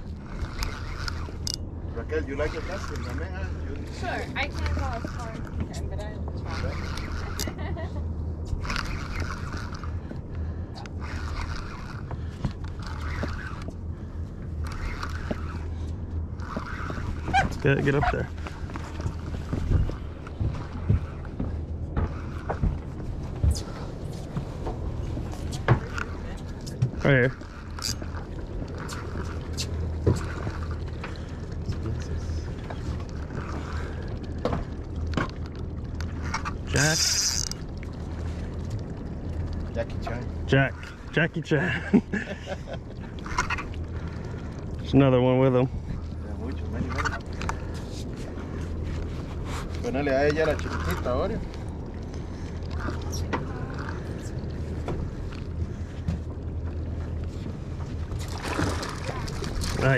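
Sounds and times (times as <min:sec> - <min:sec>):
boat engine idling: 0:00.0 - 0:59.9
steady low hum: 0:00.0 - 0:59.9
water splashes: 0:00.0 - 0:59.9
spinning reel cranking: 0:00.2 - 0:03.5, 0:04.2 - 0:05.6, 0:06.4 - 0:07.7, 0:08.6 - 0:10.1, 0:10.9 - 0:13.7, 0:14.6 - 0:15.8, 0:16.4 - 0:19.1, 0:27.0 - 0:30.8, 0:36.0 - 0:37.6.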